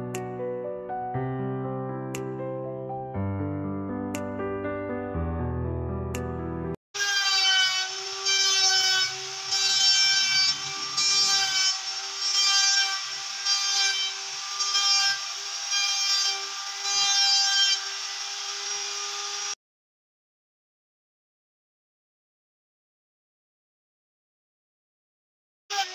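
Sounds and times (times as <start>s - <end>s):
electric router whining: 7.0s - 19.6s.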